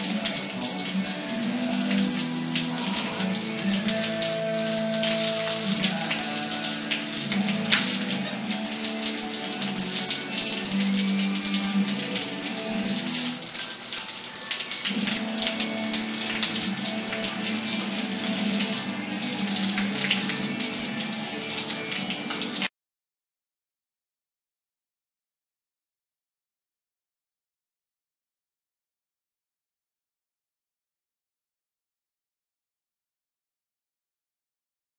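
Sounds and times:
shower water splashing on tile: 0.0s - 22.7s.

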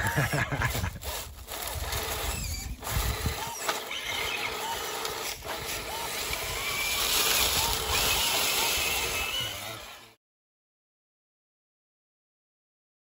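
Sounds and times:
electric motor and gearbox whining: 0.0s - 10.2s.

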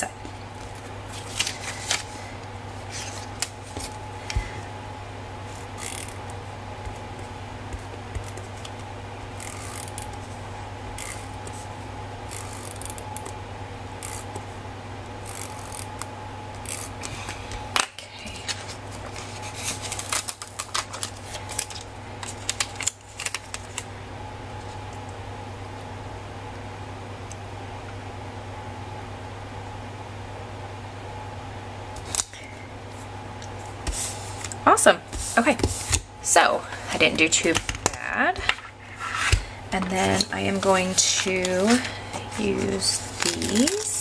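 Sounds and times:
steady low hum: 0.0s - 44.0s
paper stickers crackling and rustling: 0.6s - 4.5s, 16.7s - 23.9s, 37.1s - 44.0s.

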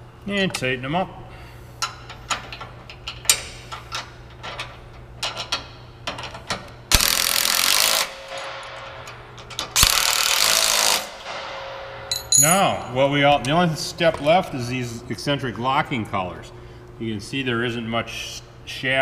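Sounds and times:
impact driver hammering bolts: 6.9s - 8.8s, 9.5s - 11.2s.

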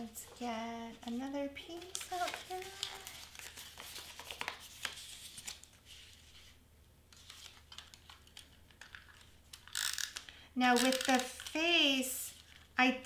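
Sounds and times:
cardstock rustling and clicking: 1.0s - 5.8s.

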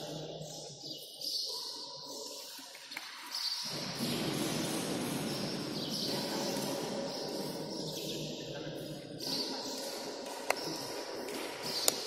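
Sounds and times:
sports hall background noise: 0.0s - 12.0s.

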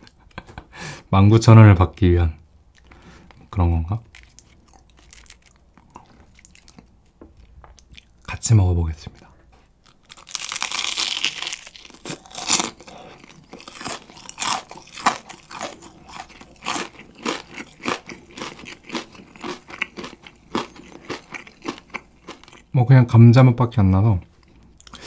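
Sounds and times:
crunching fried chicken: 3.7s - 7.0s, 9.8s - 22.7s.

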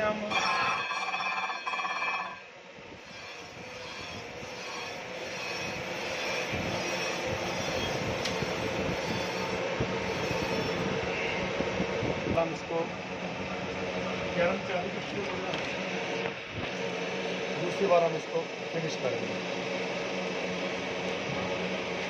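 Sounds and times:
faint machine hum: 0.0s - 22.0s
grinding wheel on steel: 0.2s - 11.0s.

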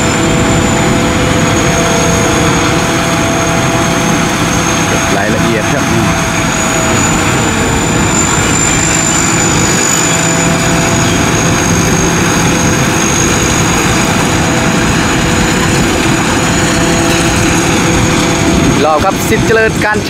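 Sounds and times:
harvester engine drone: 0.0s - 20.0s
high-pitched whine: 0.0s - 20.0s.

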